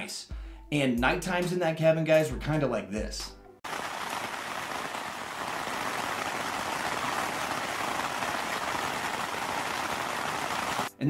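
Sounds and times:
rain pattering on tent fabric: 3.6 - 10.9.

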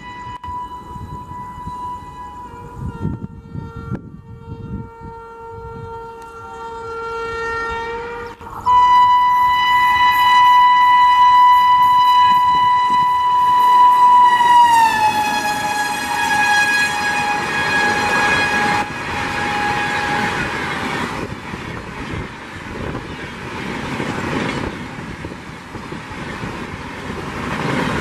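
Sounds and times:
locomotive air horn: 0.0 - 21.0.

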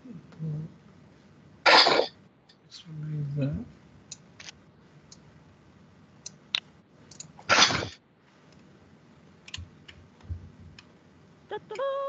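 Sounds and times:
computer keys clicking: 7.1 - 7.3, 9.4 - 10.0.

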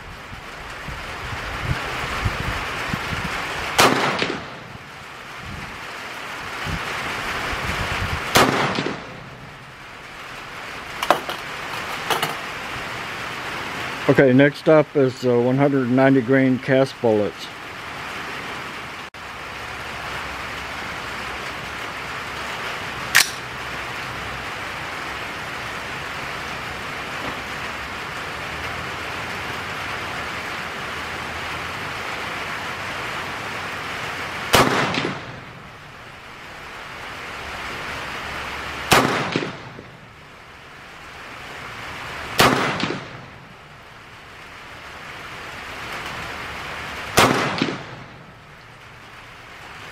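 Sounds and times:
rain hiss: 0.0 - 49.9
rifle shots: 3.8 - 4.6, 8.3 - 9.3, 23.2 - 23.4, 34.5 - 35.4, 38.9 - 39.8, 42.4 - 43.3, 47.2 - 48.2
sharp click: 23.2 - 23.4.

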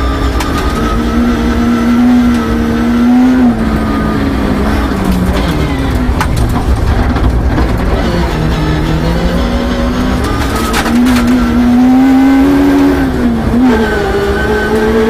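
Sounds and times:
gravel road noise: 0.0 - 15.0
rally car engine revving: 0.0 - 15.0
gravel hitting car: 4.9 - 8.1.

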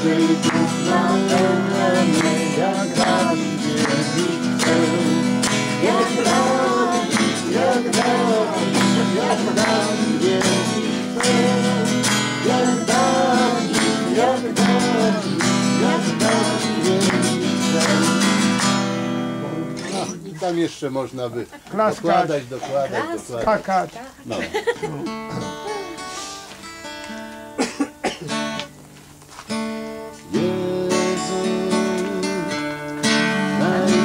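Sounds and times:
man singing: 0.0 - 18.5, 19.2 - 20.2, 30.2 - 34.0
acoustic guitar strumming: 0.0 - 20.2, 25.1 - 34.0.

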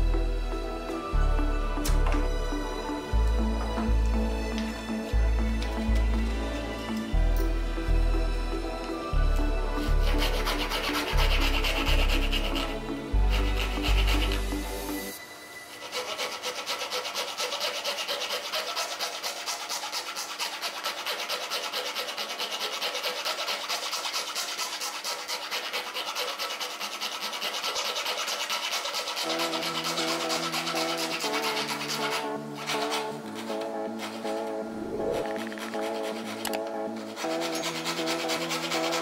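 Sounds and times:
faint music: 0.0 - 24.4
needle file rasping in wood: 9.4 - 39.0.

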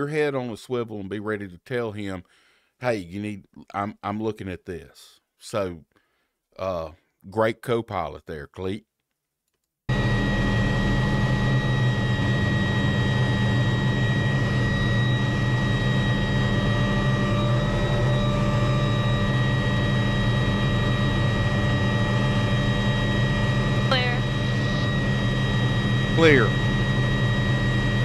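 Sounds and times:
helicopter engine and rotor drone: 9.9 - 28.0.

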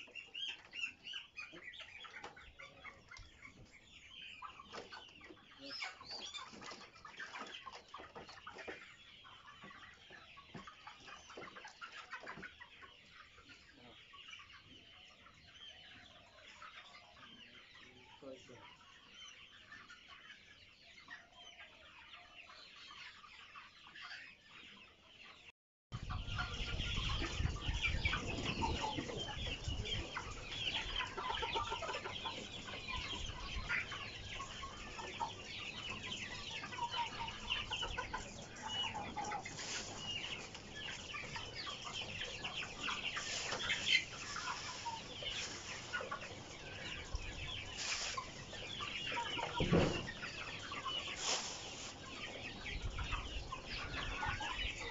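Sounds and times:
chickens clucking: 0.0 - 54.9.

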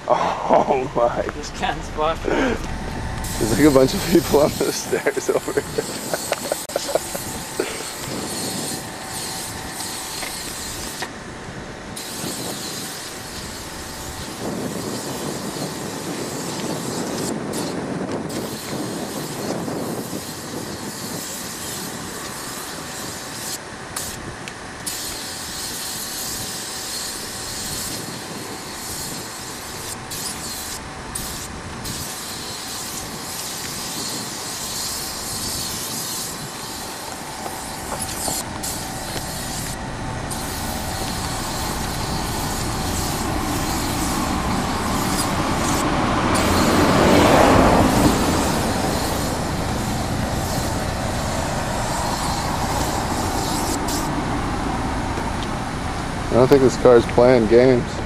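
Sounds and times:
steady background rumble: 0.0 - 12.0, 37.1 - 58.0
spray paint can hissing: 2.4 - 11.1, 11.9 - 54.3.

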